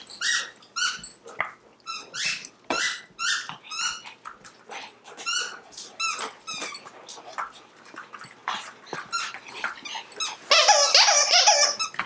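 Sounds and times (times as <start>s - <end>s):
dog toy squeaking: 0.0s - 1.2s, 1.9s - 4.0s, 5.2s - 6.9s, 9.0s - 12.0s.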